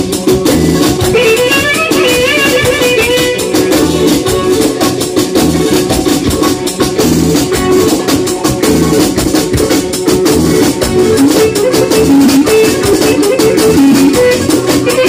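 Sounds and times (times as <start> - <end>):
steady drum beat: 0.0 - 15.0.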